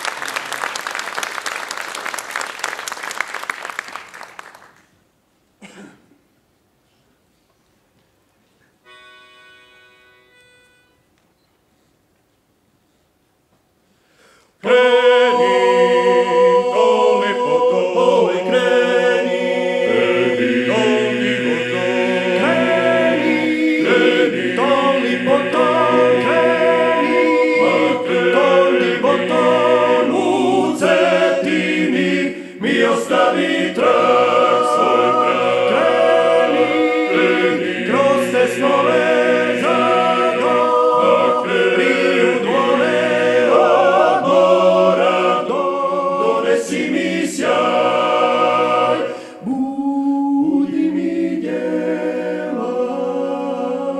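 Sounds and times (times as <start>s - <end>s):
male choir singing a cappella: 14.6s - 53.9s.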